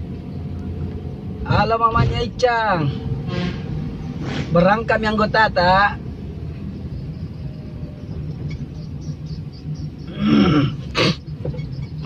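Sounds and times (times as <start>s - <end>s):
car cabin rumble: 4.9s - 12.0s.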